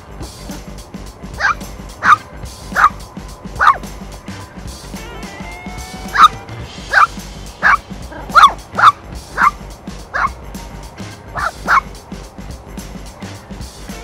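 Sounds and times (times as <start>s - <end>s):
background music: 0.0s - 14.0s
puppy yipping: 1.4s - 3.0s, 3.6s - 3.8s, 6.0s - 10.4s, 11.4s - 11.9s.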